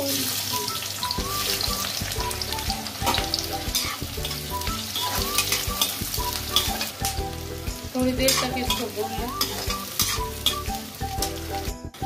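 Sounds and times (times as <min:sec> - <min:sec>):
onions sizzling in hot oil: 0:00.0 - 0:12.0
spoon scraping metal pan: 0:03.1 - 0:07.0, 0:08.2 - 0:10.7.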